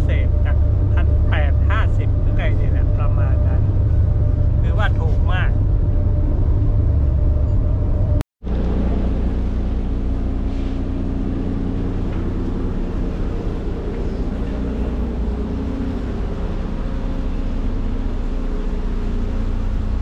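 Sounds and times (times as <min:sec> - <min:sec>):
ferry engines humming: 0:00.0 - 0:20.0.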